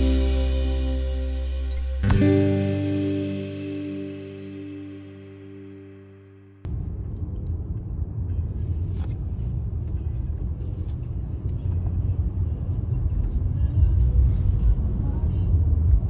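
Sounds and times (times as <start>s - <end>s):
car interior road noise: 6.6s - 16.0s.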